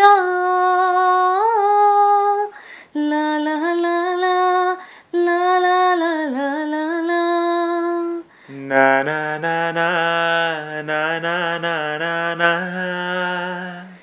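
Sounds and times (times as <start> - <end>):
woman singing wordless notes: 0.0 - 10.0.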